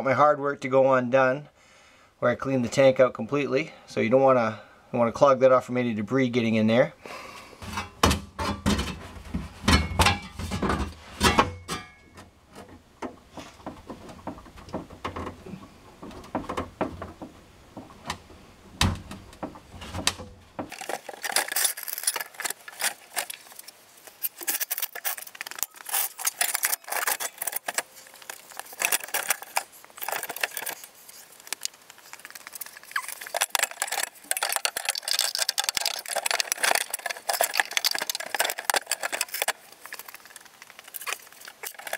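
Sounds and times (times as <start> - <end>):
metal clattering and rattling: 7.6 - 18.0, 19.3 - 41.9.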